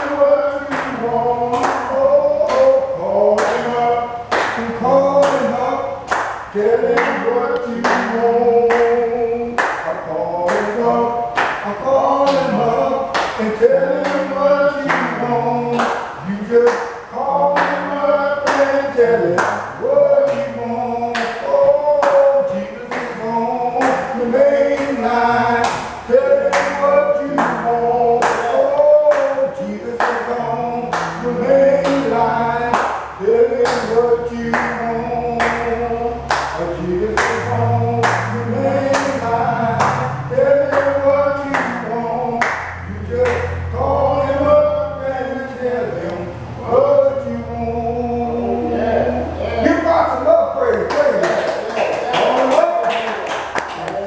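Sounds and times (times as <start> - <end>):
hand claps on the beat: 0.0 - 9.0, 9.6 - 18.7, 21.1 - 23.2, 25.6 - 29.4, 30.0 - 30.3, 30.9 - 34.8, 35.4 - 39.2, 39.8 - 43.5, 50.7 - 54.0
group singing a church song: 0.0 - 54.0.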